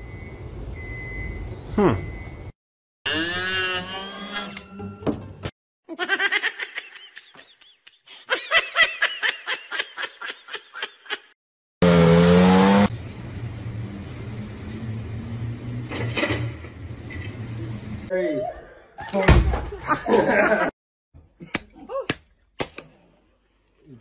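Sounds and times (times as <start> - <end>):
person laughing: 5.9 - 11.4, 19.0 - 20.7
car engine revving: 11.8 - 18.1.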